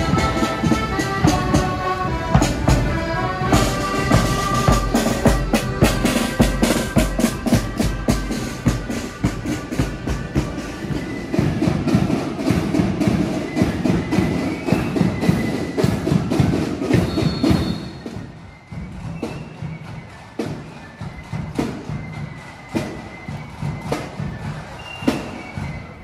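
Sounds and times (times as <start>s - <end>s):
accordion chords: 0.0s - 11.2s.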